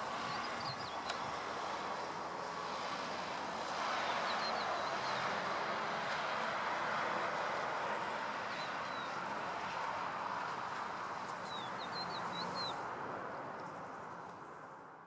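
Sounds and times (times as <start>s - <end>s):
birds chirping: 0.0s - 1.4s, 4.1s - 5.4s, 8.5s - 9.2s, 11.3s - 12.8s
distant jet engine rush: 0.0s - 14.8s.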